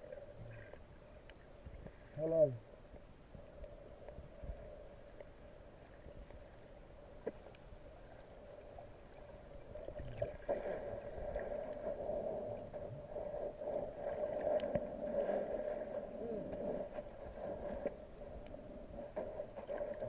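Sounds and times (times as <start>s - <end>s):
muffled underwater hum: 0.0s - 20.0s
faint clicks and knocks: 7.2s - 7.7s, 14.5s - 14.9s.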